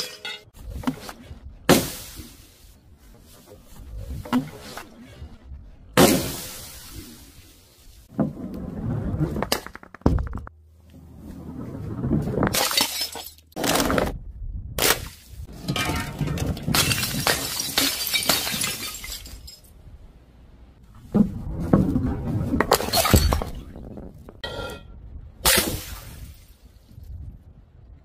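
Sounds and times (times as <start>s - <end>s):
glass shards scattering: 0.0s - 0.5s, 12.6s - 13.6s, 15.6s - 19.7s.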